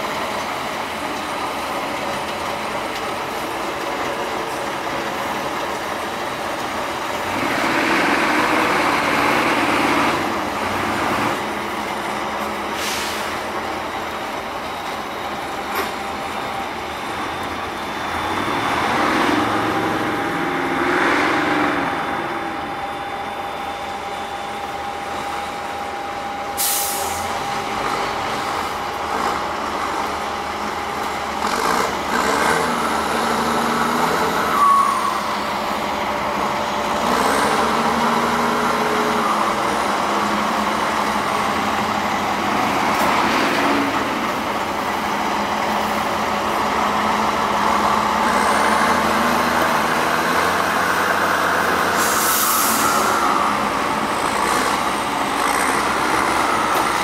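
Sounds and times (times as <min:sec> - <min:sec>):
truck diesel engine revving: 0:00.0 - 0:15.5, 0:16.1 - 0:23.5, 0:26.6 - 0:57.0
air brake hiss: 0:12.7 - 0:13.4, 0:26.6 - 0:27.3, 0:51.9 - 0:53.3.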